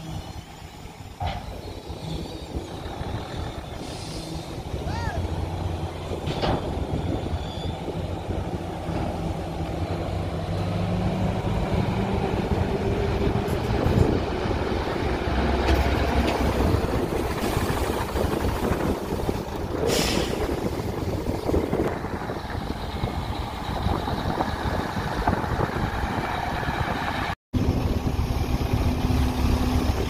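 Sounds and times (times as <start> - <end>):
diesel truck engines running: 0.0 - 30.0.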